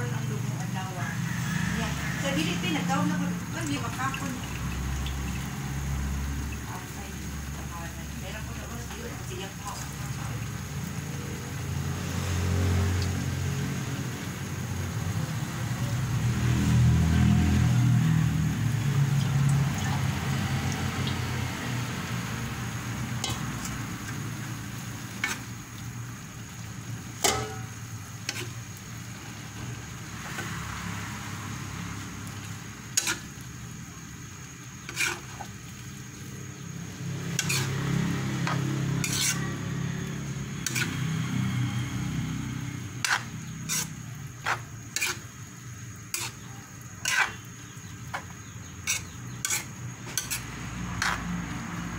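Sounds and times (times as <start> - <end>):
noodles sizzling in a wok: 0.0 - 51.9
metal spatula scraping wok: 22.3 - 26.2, 27.0 - 30.8, 32.8 - 33.5, 34.7 - 35.7, 37.2 - 51.9
utensil clinking against wok: 23.2 - 24.2, 27.2 - 28.6, 37.3 - 37.8, 38.4 - 40.0, 40.6 - 41.1, 43.0 - 45.3, 46.1 - 51.3.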